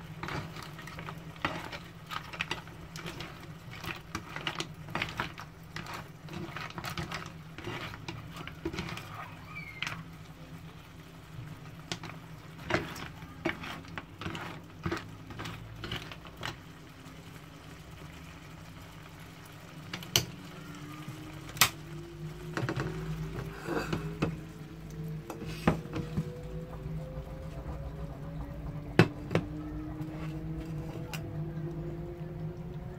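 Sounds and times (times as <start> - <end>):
steady low hum: 20.5 - 32.9
faint rising tone: 24.4 - 32.9.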